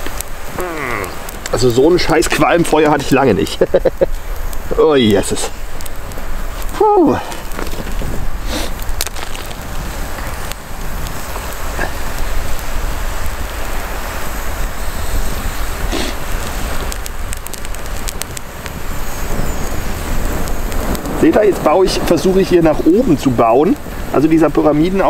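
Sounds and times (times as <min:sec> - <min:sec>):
campfire hissing: 0:00.0 - 0:25.0
faint fire crackles: 0:00.0 - 0:25.0.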